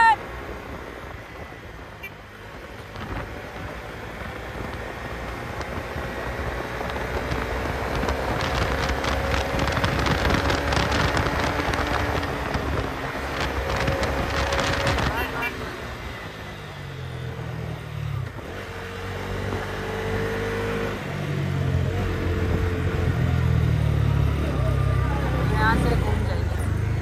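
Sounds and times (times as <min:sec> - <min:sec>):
motorcycle engine riding: 0:00.2 - 0:27.0
wind buffeting microphone: 0:02.5 - 0:15.3.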